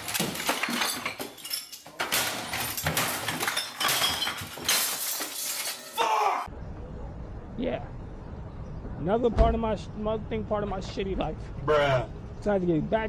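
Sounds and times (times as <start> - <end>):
glass shattering: 0.0 - 6.3.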